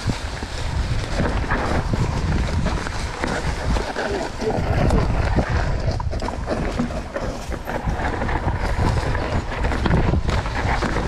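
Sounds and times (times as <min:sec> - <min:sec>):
bike knocks and rattles: 0:00.0 - 0:11.0
tyre noise on dirt trail: 0:00.0 - 0:11.0
wind buffeting microphone: 0:00.0 - 0:11.0.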